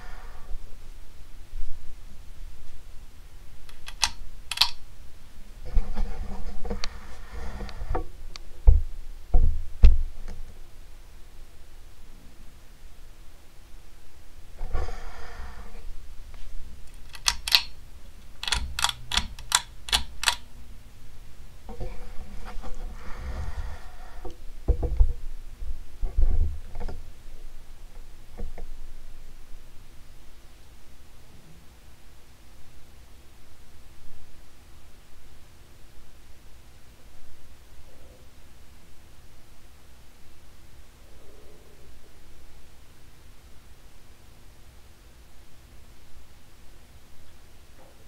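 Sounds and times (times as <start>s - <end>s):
ceiling fan humming: 0.0s - 48.0s
camera whirr: 3.6s - 4.9s, 16.4s - 20.6s
camera clicks: 3.7s - 4.8s, 17.0s - 17.7s, 18.4s - 20.4s.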